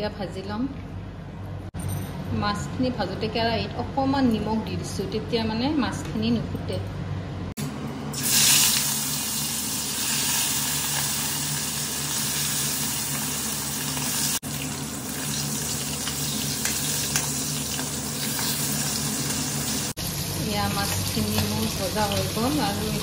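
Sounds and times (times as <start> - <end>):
fish sizzling in hot oil: 8.2 - 23.0.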